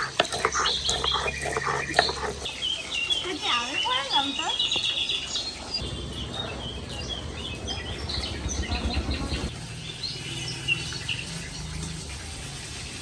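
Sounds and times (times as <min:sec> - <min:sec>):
stone roller grinding on stone: 0:00.0 - 0:02.5
birds chirping: 0:00.0 - 0:12.2.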